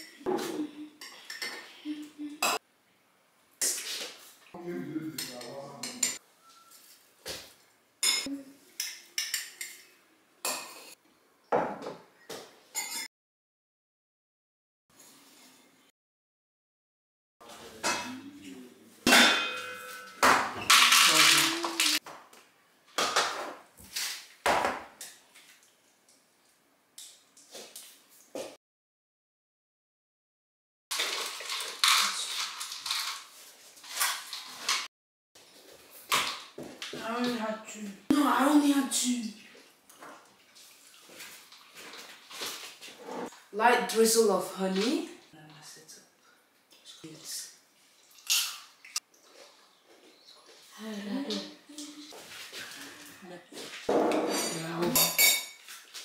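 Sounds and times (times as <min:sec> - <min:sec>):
metal spoons clinking on glass: 0:12.8 - 0:13.1
spoons clinking against glass cups: 0:12.8 - 0:13.1, 0:54.0 - 0:55.7.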